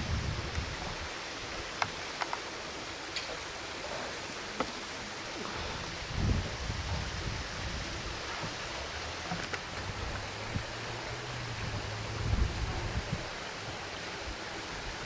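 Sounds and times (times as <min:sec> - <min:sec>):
wind on microphone: 0:00.0 - 0:01.7, 0:05.6 - 0:15.0.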